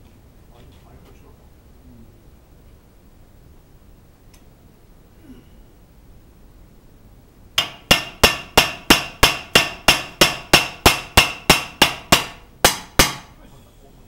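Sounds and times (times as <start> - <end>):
hammer blows on metal: 7.6 - 13.4.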